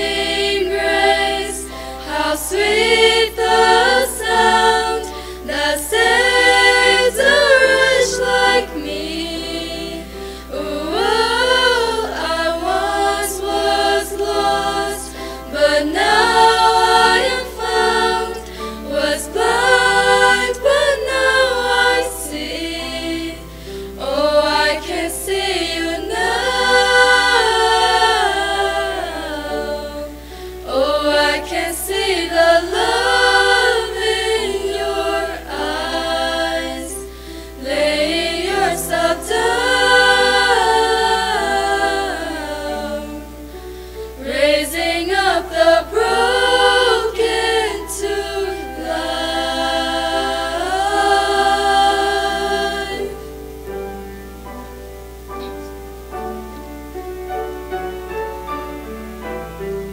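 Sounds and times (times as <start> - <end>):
women singing a hymn: 0.0 - 53.7.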